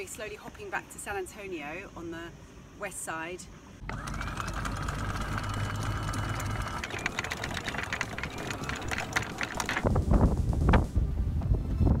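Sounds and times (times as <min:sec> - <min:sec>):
windlass motor whine: 0:03.8 - 0:12.0
anchor chain clanking and rattling: 0:03.9 - 0:10.0.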